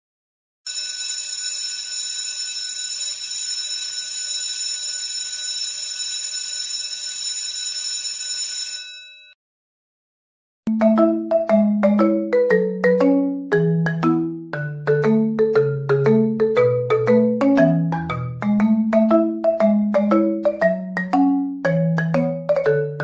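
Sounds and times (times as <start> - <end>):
electric bell ringing: 0.7 - 9.4
marimba-like music notes: 10.7 - 23.0.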